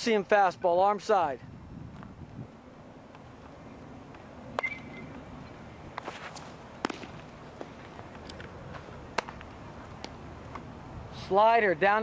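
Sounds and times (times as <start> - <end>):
faint outdoor background: 0.0 - 12.0
baseball smacking into mitt: 5.9 - 8.5, 9.1 - 10.6.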